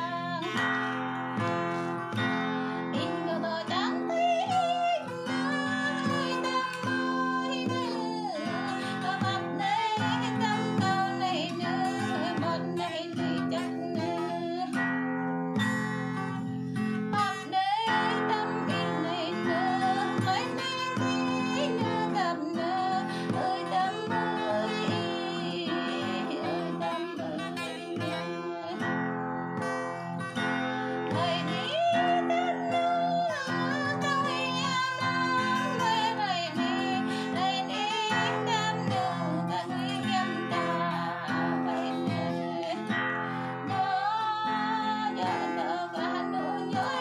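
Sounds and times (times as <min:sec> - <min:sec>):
person singing: 0:00.0 - 0:15.0, 0:16.1 - 0:29.8, 0:31.0 - 0:47.0
acoustic guitar chords: 0:00.0 - 0:47.0.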